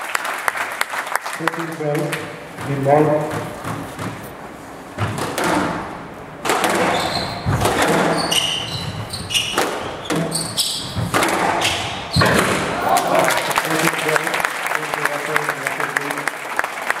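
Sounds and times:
squash ball hitting rackets and walls: 0:02.6 - 0:12.8
shoes squeaking on floor: 0:06.6 - 0:12.5.

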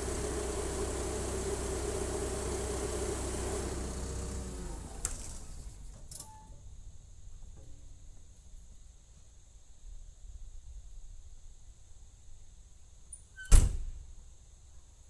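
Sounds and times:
diesel engine idling: 0:00.0 - 0:05.9.

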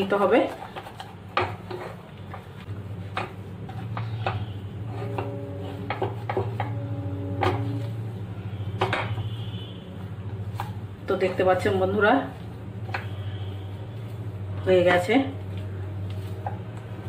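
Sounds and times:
low hum: 0:02.7 - 0:17.0
spatula scraping frying pan: 0:03.0 - 0:08.2.

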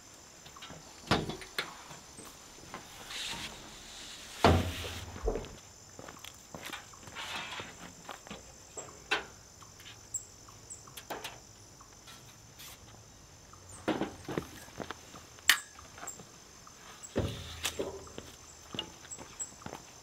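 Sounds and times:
shuffling footsteps: 0:01.7 - 0:08.6, 0:14.0 - 0:20.0.

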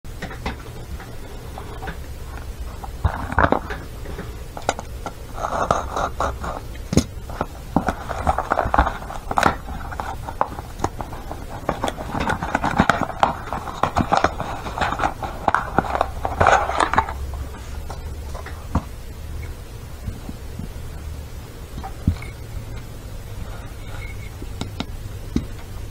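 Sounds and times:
cardboard and paper rubbing: 0:00.6 - 0:19.1
sharp clicks and taps: 0:24.4 - 0:25.7.

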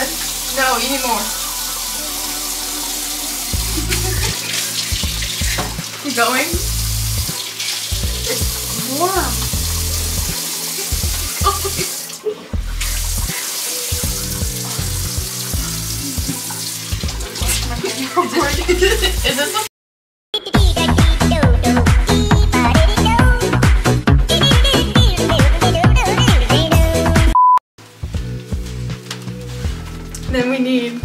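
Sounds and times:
faucet running into sink: 0:00.0 - 0:19.7.

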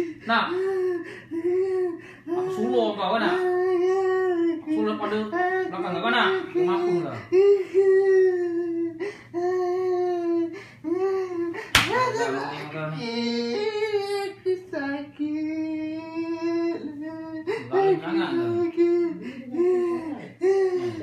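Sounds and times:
person's voice in long held tones: 0:00.0 - 0:11.6, 0:12.4 - 0:21.0
sharp slap: 0:11.7 - 0:12.0.

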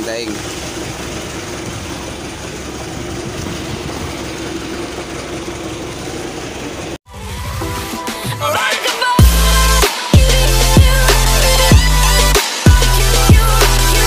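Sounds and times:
boat engine humming: 0:00.0 - 0:08.4, 0:09.1 - 0:14.0
electronic music: 0:07.1 - 0:14.0.

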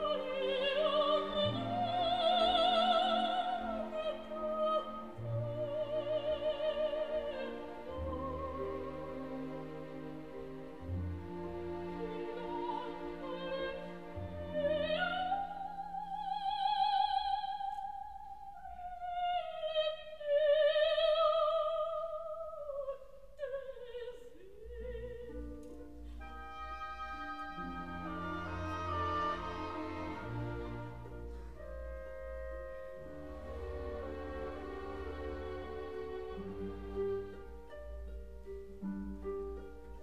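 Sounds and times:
orchestra playing: 0:00.0 - 0:15.4, 0:25.9 - 0:40.0.

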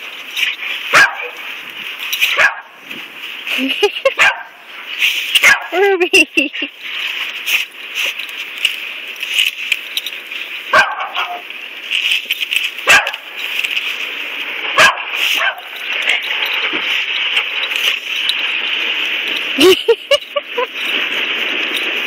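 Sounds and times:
steady high hiss: 0:00.0 - 0:22.0
dog barking: 0:00.9 - 0:01.4, 0:02.3 - 0:02.8, 0:04.0 - 0:04.6, 0:05.4 - 0:05.8, 0:10.7 - 0:11.4, 0:12.8 - 0:13.3, 0:14.8 - 0:15.8.

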